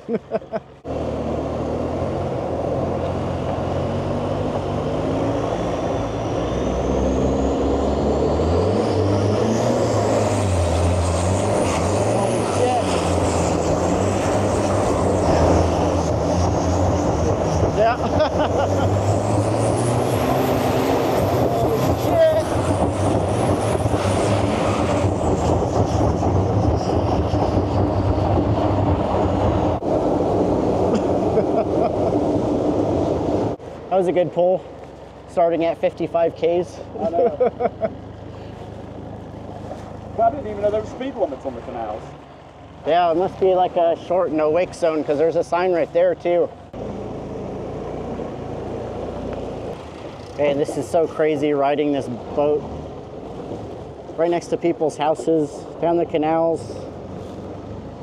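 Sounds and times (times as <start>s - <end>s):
wind: 0.0s - 58.0s
diesel boat engine running hard: 0.6s - 58.0s
high whine rising in pitch: 0.9s - 33.6s.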